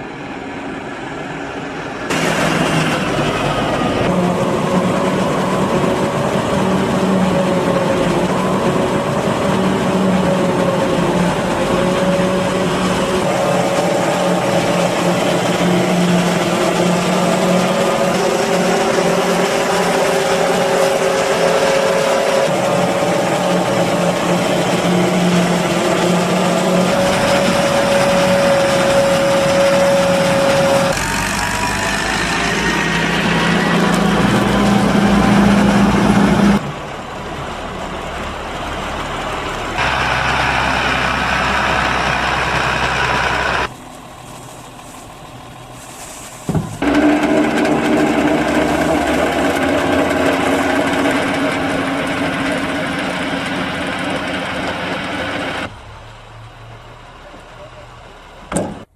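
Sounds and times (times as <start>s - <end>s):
tractor engine running: 2.1s - 58.9s
forage wagon unloading: 39.8s - 55.6s
forage harvester chopping: 46.4s - 55.6s.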